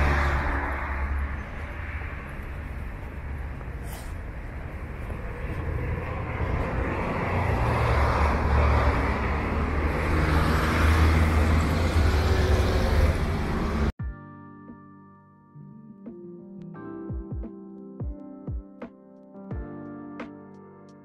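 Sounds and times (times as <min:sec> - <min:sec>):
vehicle engine rumble: 0:00.0 - 0:14.0.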